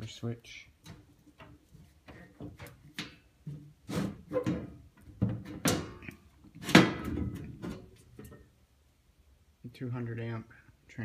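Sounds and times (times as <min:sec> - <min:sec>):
sheet metal knocks and scrapes: 0:00.8 - 0:08.5.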